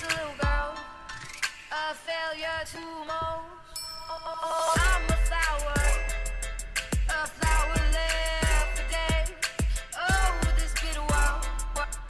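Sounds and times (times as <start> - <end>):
synth notes: 4.4 - 12.0
deep kick drums: 4.8 - 6.1, 7.0 - 11.4
hi-hat ticks: 4.8 - 12.0
low bass: 4.8 - 12.0.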